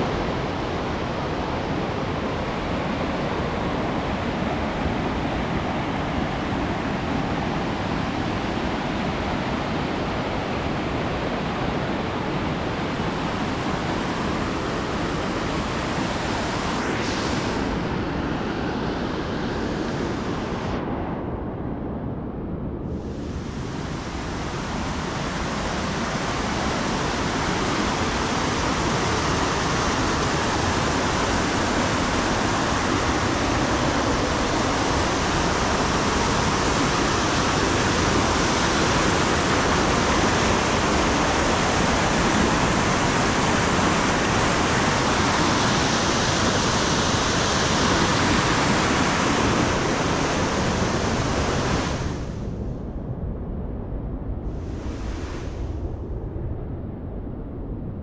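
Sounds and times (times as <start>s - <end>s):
stream rushing over boulders: 23.3s - 52.2s.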